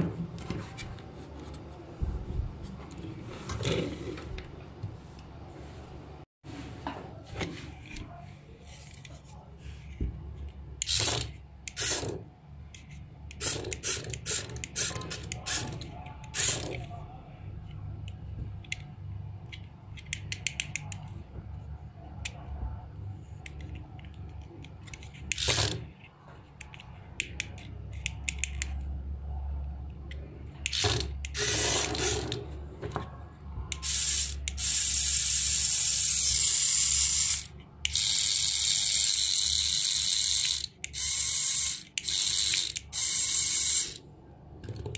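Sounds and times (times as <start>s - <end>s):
toy motor whirring rattle: 10.8s - 12.2s, 12.8s - 16.9s, 24.8s - 25.9s, 30.7s - 32.4s, 33.8s - 44.0s.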